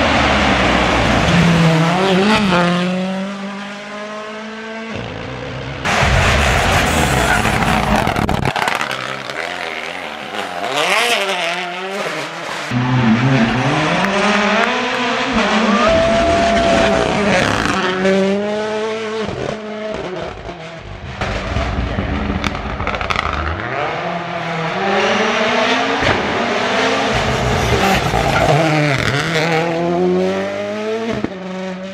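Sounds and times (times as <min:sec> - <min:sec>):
rally car engines revving: 0:00.0 - 0:31.9
exhaust cracks: 0:05.9 - 0:10.6, 0:21.2 - 0:23.6.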